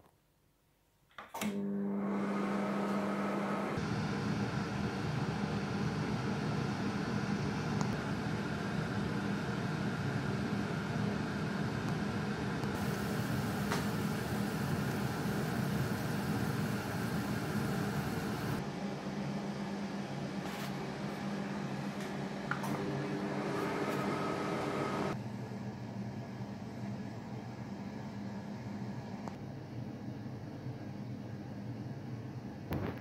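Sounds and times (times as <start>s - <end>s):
microwave humming with fan: 1.4s - 29.3s.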